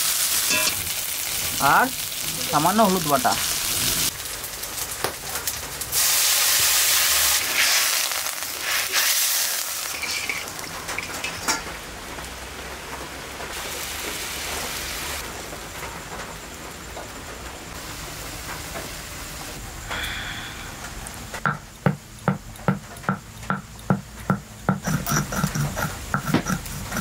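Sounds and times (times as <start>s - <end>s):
water hissing in hot pan: 0.0s - 17.0s, 17.6s - 21.9s
gravy sizzling: 0.0s - 27.0s.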